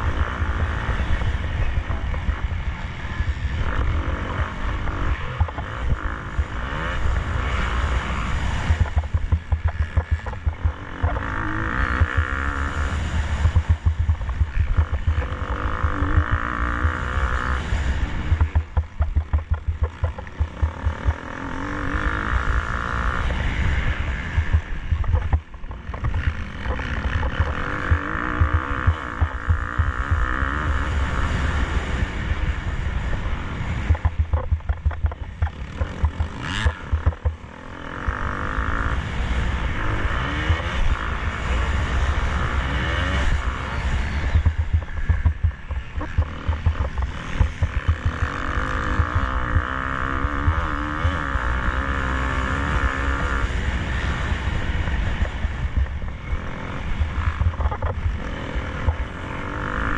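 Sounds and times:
motocross bike engine revving: 0:00.0 - 0:59.9
rising whine: 0:24.0 - 0:30.9.

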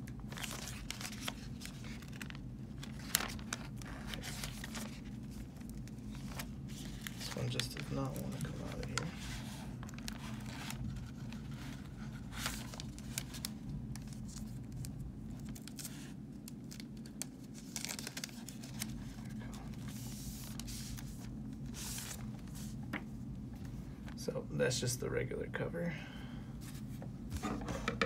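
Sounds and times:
steady low hum: 0:00.0 - 0:28.0
plastic bag tearing and crinkling: 0:00.2 - 0:11.3.

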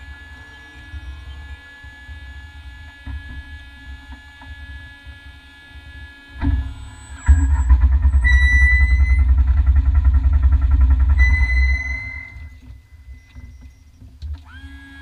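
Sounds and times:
car engine idling: 0:06.6 - 0:13.8
high steady beep: 0:11.2 - 0:13.8.

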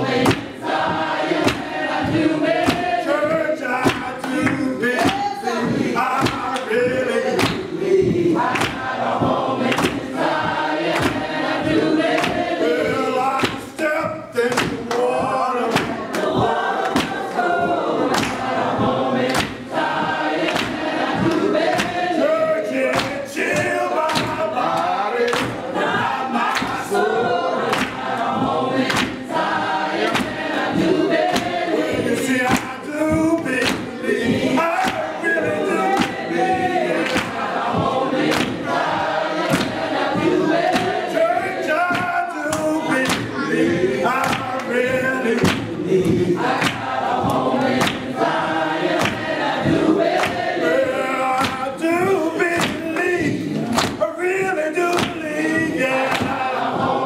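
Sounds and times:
choir and congregation singing: 0:00.0 - 0:57.0
handclaps on a steady beat: 0:00.0 - 0:57.0.

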